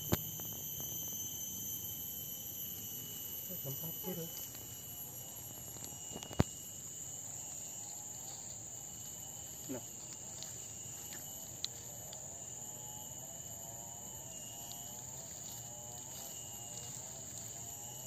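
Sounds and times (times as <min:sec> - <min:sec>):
insects droning: 0:00.0 - 0:18.0.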